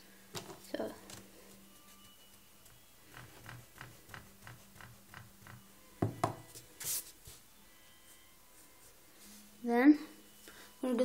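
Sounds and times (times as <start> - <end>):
eraser rubbing on paper: 6.8 - 7.4.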